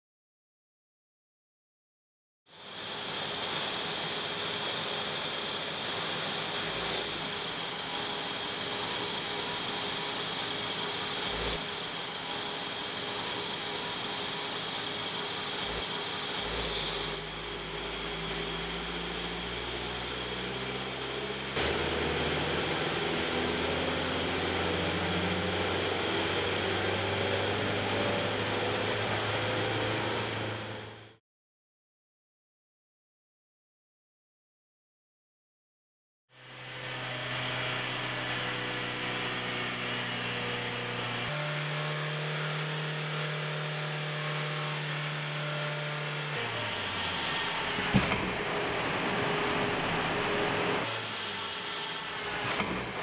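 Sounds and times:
mechanical hum with high whine: 0:02.7 - 0:31.2
car engine accelerating: 0:20.6 - 0:30.9.

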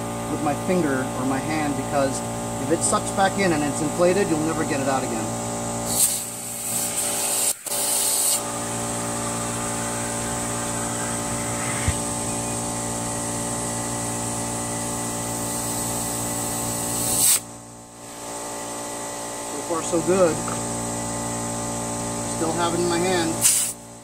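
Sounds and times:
air compressor running: 0:00.0 - 0:24.0
air hissing into inner tube: 0:05.8 - 0:12.9, 0:15.4 - 0:17.4, 0:23.4 - 0:23.8.

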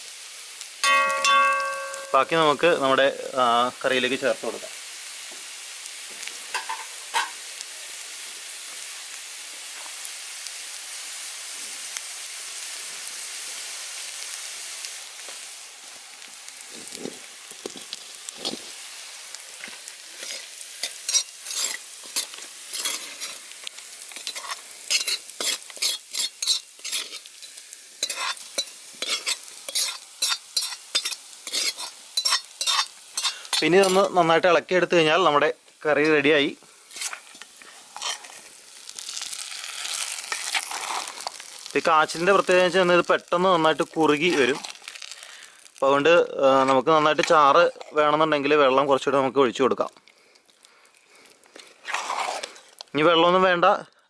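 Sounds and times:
frying in a wok sizzling: 0:00.0 - 0:53.9
metal ladle scraping a wok: 0:20.2 - 0:23.5, 0:24.2 - 0:34.2, 0:36.9 - 0:38.5, 0:51.8 - 0:52.8.

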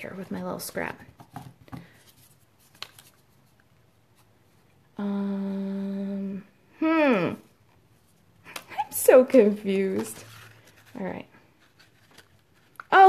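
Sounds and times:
paper rustling: 0:01.4 - 0:04.3, 0:08.0 - 0:13.0
woman humming: 0:05.0 - 0:07.4.

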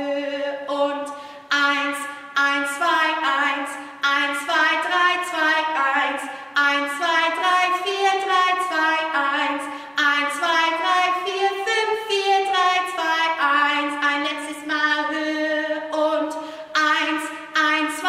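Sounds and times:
woman singing unaccompanied: 0:00.0 - 0:18.0.

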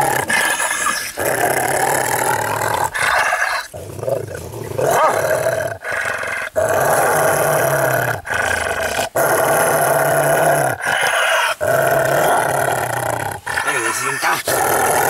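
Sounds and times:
large dog growling: 0:00.0 - 0:15.0.

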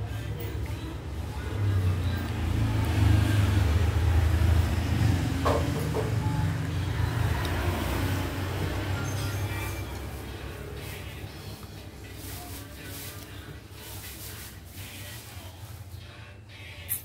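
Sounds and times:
vehicle engine rumble: 0:00.0 - 0:16.1.

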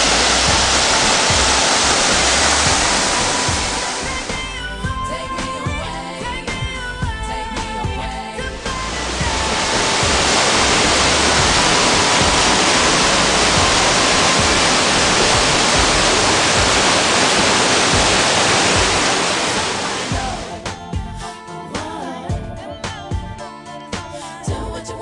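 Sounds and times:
waterfall rushing: 0:00.0 - 0:04.8, 0:08.4 - 0:20.6
music: 0:00.0 - 0:25.0.

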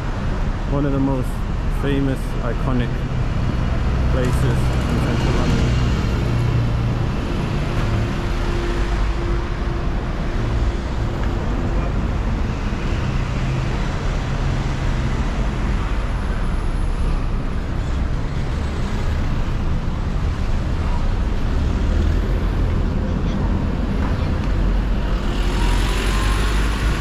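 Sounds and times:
road noise: 0:00.0 - 0:27.0
vehicle engines passing: 0:00.0 - 0:27.0.

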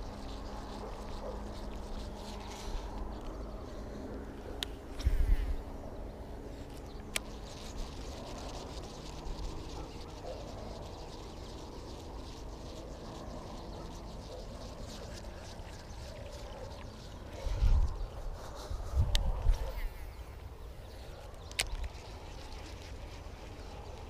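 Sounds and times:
wind rumble on microphone: 0:00.0 - 0:07.2, 0:15.0 - 0:24.0.

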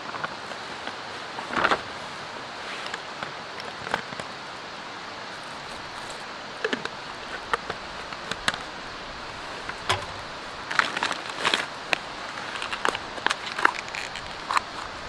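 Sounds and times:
background hiss: 0:00.0 - 0:15.0
camp cooking gear clinking: 0:05.5 - 0:15.0.

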